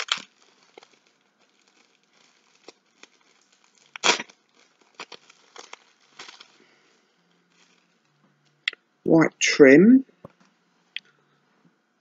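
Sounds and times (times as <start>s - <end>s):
packaging rustling and crinkling: 0.0s - 8.2s.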